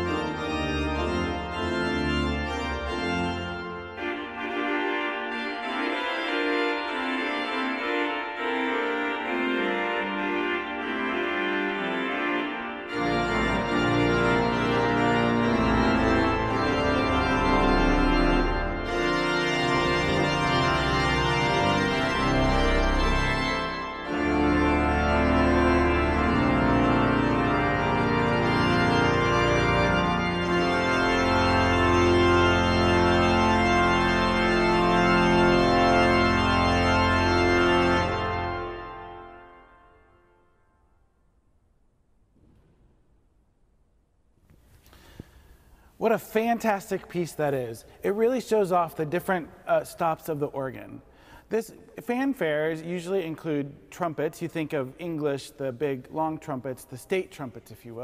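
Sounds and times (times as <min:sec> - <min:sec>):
organ pedal bass: 0:00.0 - 0:40.1
pipe organ fanfare: 0:00.0 - 0:40.7, 0:46.0 - 0:58.0.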